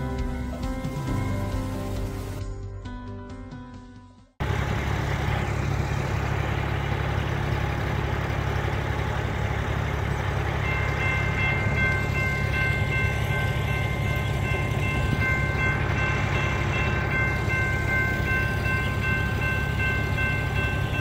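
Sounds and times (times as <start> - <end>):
railroad crossing bell ringing: 0.0 - 2.4, 4.8 - 21.0
music: 0.0 - 4.4
low outdoor rumble: 4.4 - 21.0.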